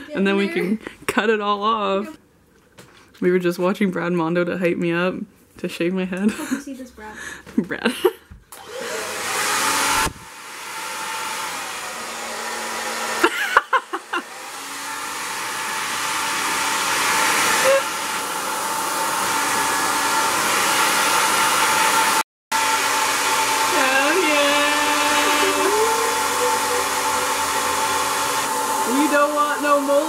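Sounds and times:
hair dryer running: 0:08.5 - 0:30.0.

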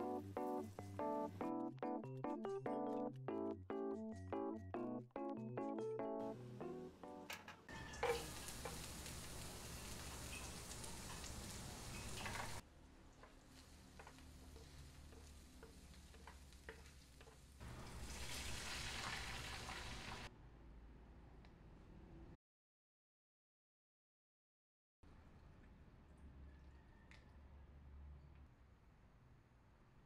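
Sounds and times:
hot oil sizzling in a pan: 0:07.7 - 0:20.3
spatula scraping and tapping: 0:13.2 - 0:17.6.

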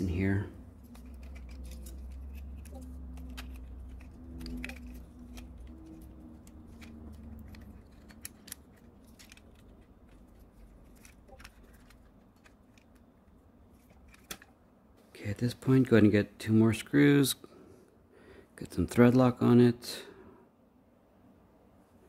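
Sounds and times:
low hum: 0:00.0 - 0:15.0
plastic and metal parts clicking: 0:00.8 - 0:13.1, 0:13.8 - 0:14.6.

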